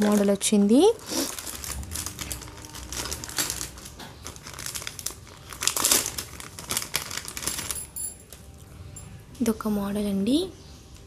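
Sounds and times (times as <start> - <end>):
plastic packets crinkling: 0.0 - 8.6.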